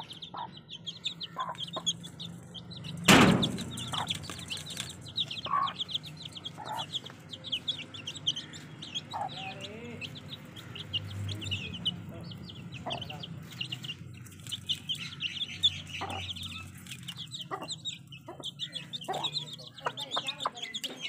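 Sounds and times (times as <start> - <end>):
chicks peeping: 0.0 - 21.0
hen clucking: 0.0 - 21.0
sharp loud knock: 3.1 - 4.2.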